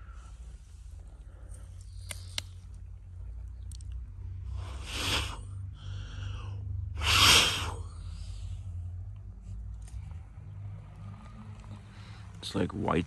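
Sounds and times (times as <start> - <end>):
puffs of breath blown: 4.4 - 8.8.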